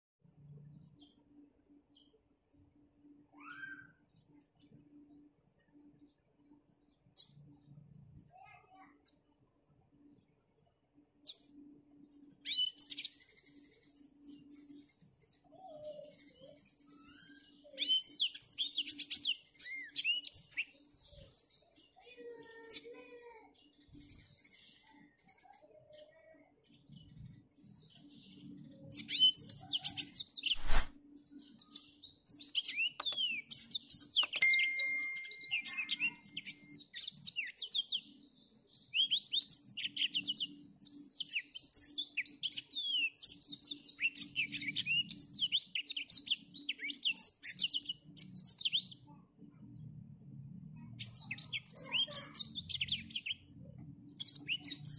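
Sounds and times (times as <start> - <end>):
canary singing: 28.2 - 38.2, 38.8 - 49.1, 54.1 - 54.9.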